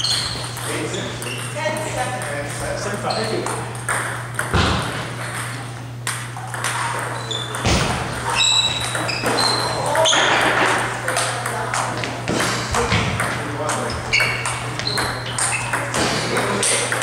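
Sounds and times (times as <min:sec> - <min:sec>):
steady low hum: 0:00.0 - 0:17.0
table tennis ball clicking: 0:05.2 - 0:07.6, 0:11.0 - 0:11.9.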